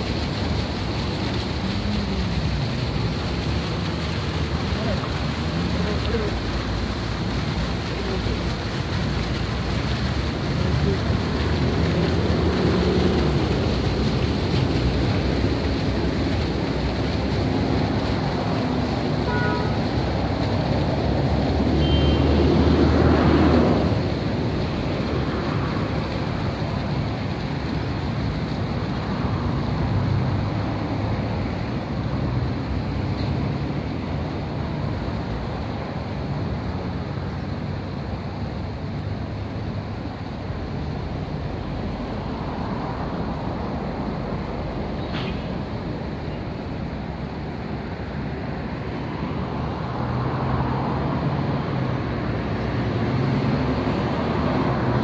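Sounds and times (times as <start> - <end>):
fountain water splashing into pool: 0.0 - 55.0.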